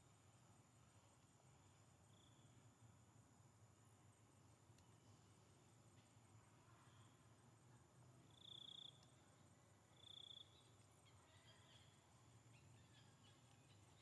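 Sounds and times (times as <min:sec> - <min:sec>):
faint low hum: 0:00.0 - 0:14.0
faint chirps: 0:00.8 - 0:02.7, 0:06.5 - 0:14.0
high-pitched insect trills: 0:02.0 - 0:02.7, 0:08.3 - 0:09.2, 0:09.8 - 0:14.0.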